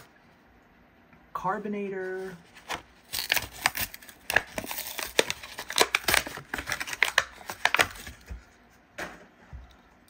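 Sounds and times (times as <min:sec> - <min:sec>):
plastic packaging crinkling: 0:02.2 - 0:08.3.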